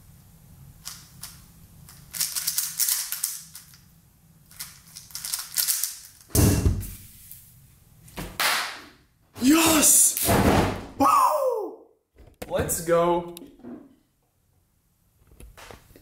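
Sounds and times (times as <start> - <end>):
speed cube clicking turns: 0.8 - 3.8, 4.5 - 6.2.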